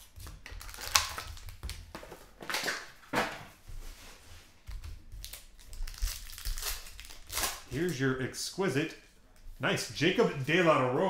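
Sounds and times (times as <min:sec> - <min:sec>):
foil wrappers crinkling: 0:00.0 - 0:03.0, 0:05.2 - 0:08.0.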